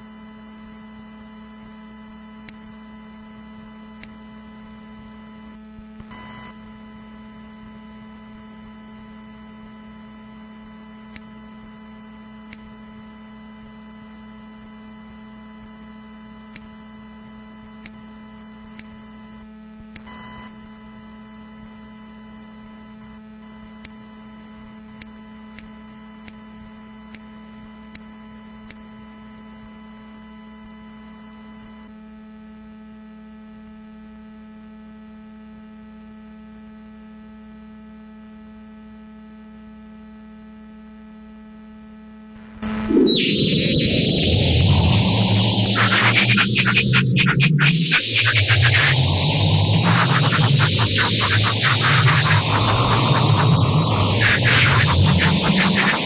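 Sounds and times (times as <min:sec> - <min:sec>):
brief rush of noise: 0:42.4 - 0:56.0
electronic hum: 0:42.4 - 0:56.0.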